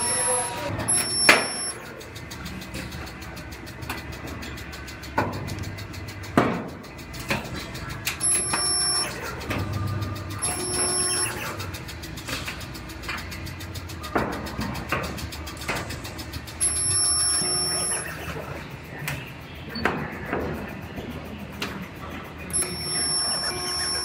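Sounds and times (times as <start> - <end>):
humming weld pulse: 0.0 - 19.8, 20.7 - 24.0
welder electrodes clunking: 0.9 - 1.8, 22.5 - 24.0.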